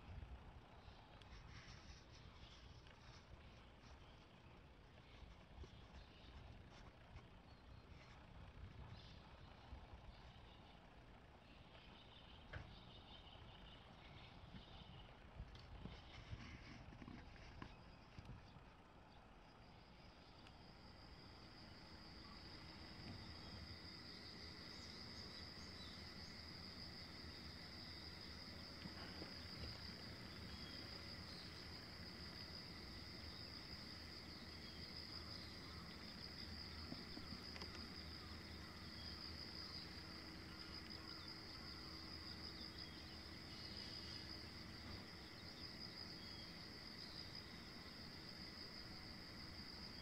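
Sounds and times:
faint low rumble: 0:00.0 - 0:50.0
insects trilling: 0:19.4 - 0:50.0.

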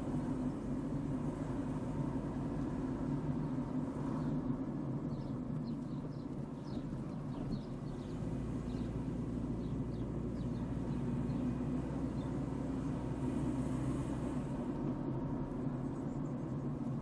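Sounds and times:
car driving slowly: 0:00.0 - 0:17.0
bird chirping: 0:05.0 - 0:12.4.

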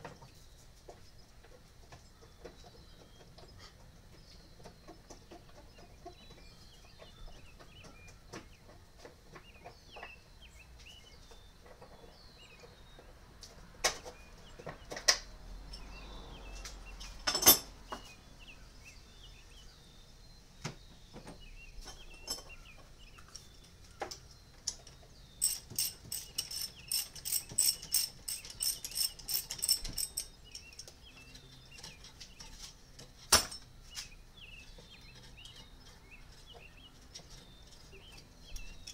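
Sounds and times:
birds chirping: 0:00.0 - 0:33.1, 0:33.8 - 0:38.9
metal tool clinks: 0:25.4 - 0:30.9
ratchet wrench clicking: 0:25.4 - 0:30.9.

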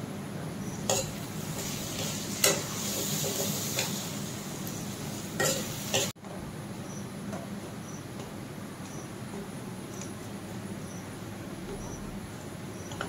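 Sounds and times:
greens sizzling in a pan: 0:00.7 - 0:06.2.

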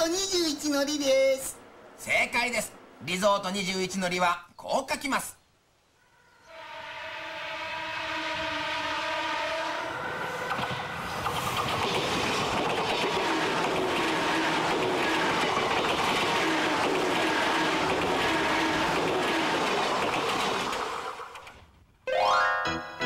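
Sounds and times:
train horn: 0:06.0 - 0:11.2, 0:13.1 - 0:15.4, 0:16.3 - 0:19.8
train wheels rumbling on rails: 0:09.8 - 0:21.8.

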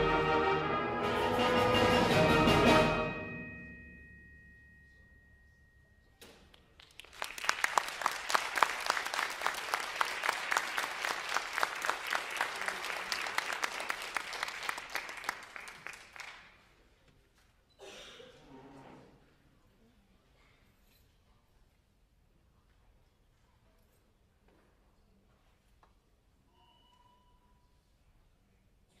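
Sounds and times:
audience applause: 0:06.8 - 0:16.5.

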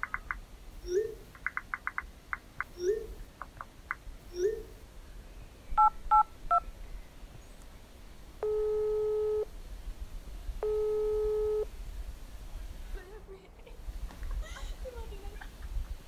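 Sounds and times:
two-tone dialing beeps: 0:05.8 - 0:06.6, 0:08.4 - 0:09.5, 0:10.6 - 0:11.7
phone ringback tone: 0:08.4 - 0:09.5, 0:10.6 - 0:11.7.

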